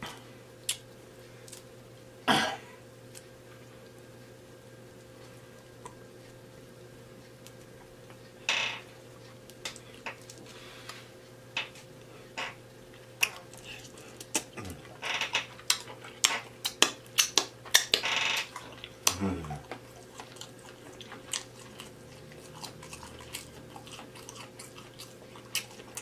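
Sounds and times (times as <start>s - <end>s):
lip-smacking and chewing: 0.6s - 1.8s, 12.9s - 15.0s, 15.6s - 26.0s
wet squish of food: 16.6s - 26.0s.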